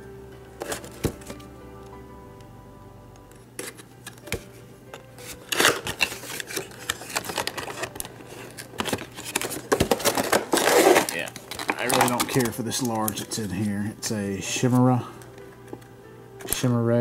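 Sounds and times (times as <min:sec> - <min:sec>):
cardboard rustling: 0:05.2 - 0:13.9
plastic crinkling and scraping: 0:05.2 - 0:13.9
cardboard pack being cut open: 0:08.5 - 0:12.2.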